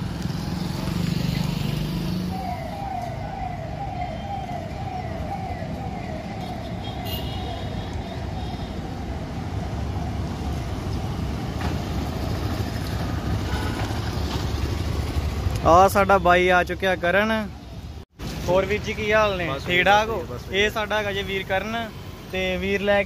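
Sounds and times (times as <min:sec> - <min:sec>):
low traffic rumble: 0:00.0 - 0:23.0
siren-like rising tone: 0:01.6 - 0:10.8.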